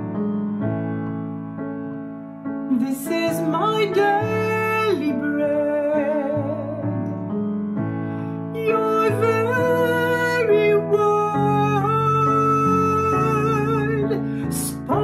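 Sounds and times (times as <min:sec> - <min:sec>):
piano: 0:00.0 - 0:15.0
woman singing: 0:02.7 - 0:07.1, 0:08.5 - 0:15.0.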